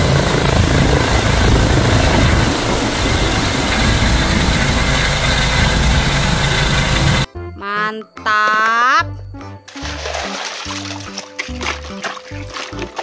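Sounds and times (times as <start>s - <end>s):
helicopter flying low: 0.0s - 7.3s.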